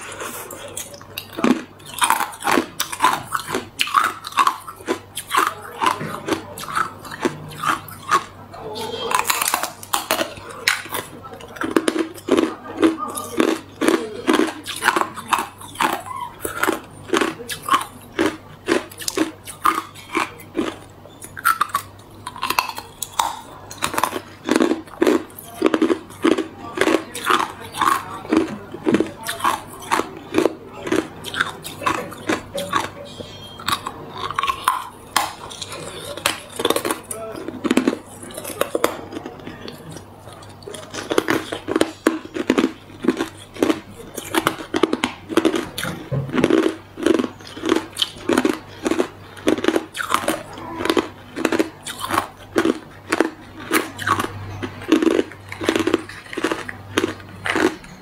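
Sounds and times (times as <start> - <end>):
person crunching ice: 40.9 - 57.9.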